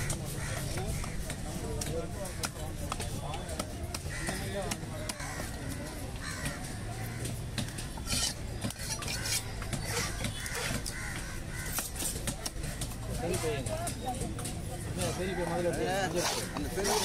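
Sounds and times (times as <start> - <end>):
crows calling: 0.0 - 1.5, 4.0 - 13.6
cleaver chopping on wooden block: 7.2 - 13.0
knife clinks and scrapes: 8.0 - 9.5.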